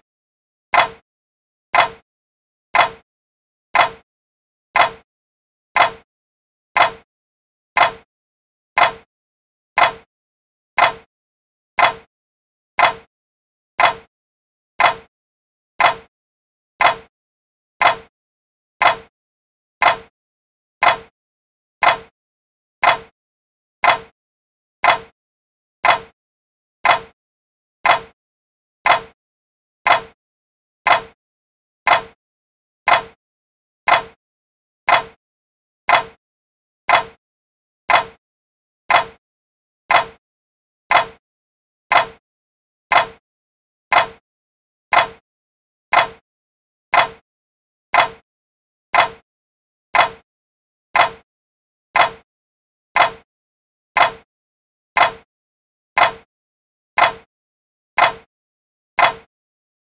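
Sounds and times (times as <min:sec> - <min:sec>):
clock ticking: 0:00.7 - 0:01.0, 0:01.8 - 0:02.0, 0:02.8 - 0:03.0, 0:03.8 - 0:04.0, 0:04.8 - 0:05.0, 0:05.8 - 0:06.0, 0:06.8 - 0:07.1, 0:07.8 - 0:08.1, 0:08.8 - 0:09.1, 0:09.8 - 0:10.1, 0:10.8 - 0:11.1, 0:11.8 - 0:12.1, 0:12.8 - 0:13.1, 0:13.8 - 0:14.1, 0:14.8 - 0:15.1, 0:15.8 - 0:16.1, 0:16.8 - 0:17.1, 0:17.8 - 0:18.1, 0:18.8 - 0:19.1, 0:19.8 - 0:20.1, 0:20.8 - 0:21.1, 0:21.8 - 0:22.1, 0:22.8 - 0:23.1, 0:23.8 - 0:24.1, 0:24.8 - 0:25.1, 0:25.8 - 0:26.2, 0:26.8 - 0:27.2, 0:27.8 - 0:28.2, 0:28.8 - 0:29.2, 0:29.9 - 0:30.2, 0:30.9 - 0:31.2, 0:31.9 - 0:32.2, 0:32.9 - 0:33.2, 0:33.9 - 0:34.2, 0:34.9 - 0:35.2, 0:35.9 - 0:36.2, 0:36.9 - 0:37.2, 0:37.9 - 0:38.2, 0:38.9 - 0:39.2, 0:39.9 - 0:40.2, 0:40.9 - 0:41.2, 0:41.9 - 0:42.2, 0:42.9 - 0:43.2, 0:43.9 - 0:44.2, 0:44.9 - 0:45.2, 0:45.9 - 0:46.2, 0:46.9 - 0:47.2, 0:48.0 - 0:48.2, 0:49.0 - 0:49.2, 0:50.0 - 0:50.2, 0:51.0 - 0:51.2, 0:52.0 - 0:52.2, 0:53.0 - 0:53.3, 0:54.0 - 0:54.3, 0:55.0 - 0:55.3, 0:56.0 - 0:56.3, 0:57.0 - 0:57.3, 0:58.0 - 0:58.3, 0:59.0 - 0:59.3.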